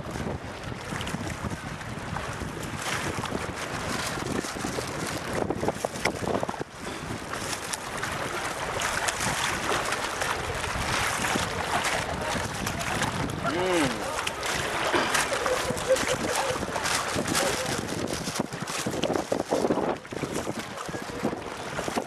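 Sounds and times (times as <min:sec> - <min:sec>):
water moving around boat: 0:00.0 - 0:22.0
wind buffeting microphone: 0:00.0 - 0:22.0.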